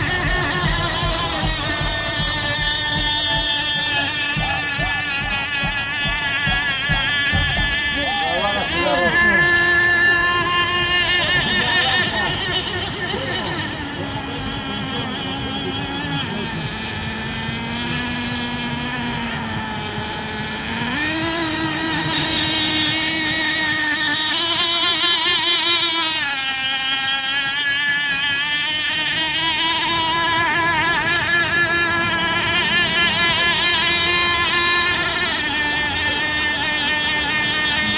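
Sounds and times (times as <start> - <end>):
model boat engine whine: 0.0 - 37.9.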